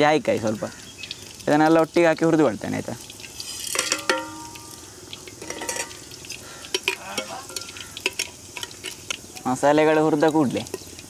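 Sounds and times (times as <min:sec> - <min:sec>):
spices sizzling in hot oil: 0:00.0 - 0:11.0
metal clink: 0:03.6 - 0:04.8, 0:05.4 - 0:06.0.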